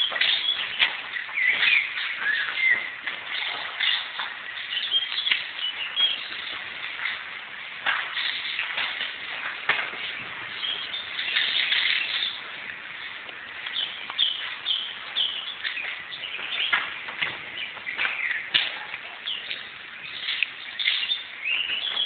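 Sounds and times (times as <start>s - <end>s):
bird chirps: 0.0s - 6.7s, 10.1s - 12.5s, 13.6s - 22.0s.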